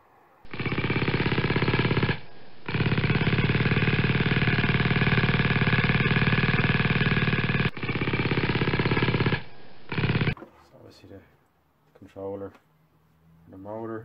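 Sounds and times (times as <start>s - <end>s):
power screwdriver running: 0.5s - 10.4s.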